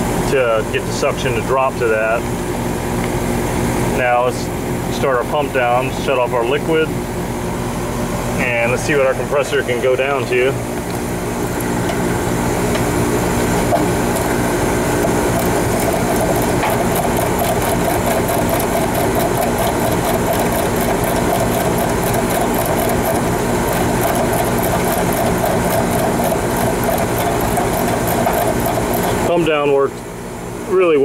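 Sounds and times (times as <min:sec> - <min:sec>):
compressor and fan humming: 0:00.0 - 0:31.0
ratchet wrench clicking: 0:15.3 - 0:29.2.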